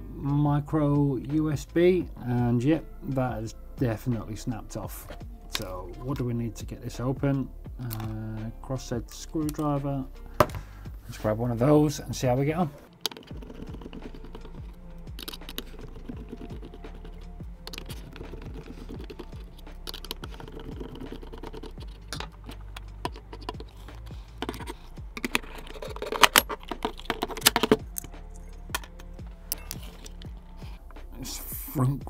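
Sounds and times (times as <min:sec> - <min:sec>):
small clicks taps and scrapes: 0:12.8 - 0:31.1.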